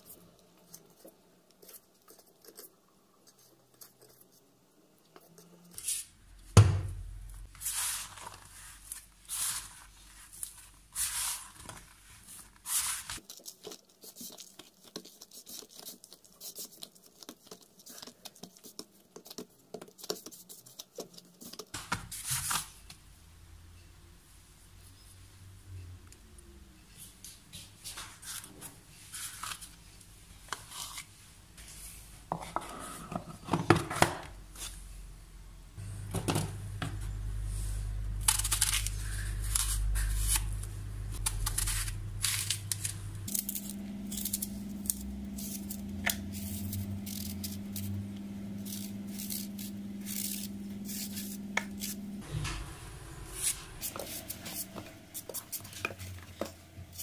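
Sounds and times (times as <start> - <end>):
steady low hum: 34.4 - 55.2
knife cutting apples: 38.1 - 52.2, 53.2 - 57.0.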